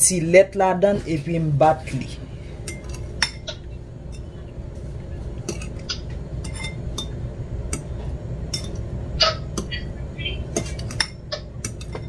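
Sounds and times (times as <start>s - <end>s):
metal spoon clinking ceramic bowl: 2.6s - 4.4s, 5.5s - 7.9s, 8.5s - 8.8s, 10.5s - 12.0s.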